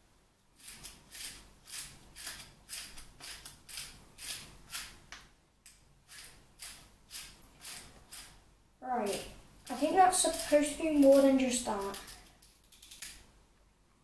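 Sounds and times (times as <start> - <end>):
salt mill grinding: 0.6 - 5.0, 9.1 - 13.1.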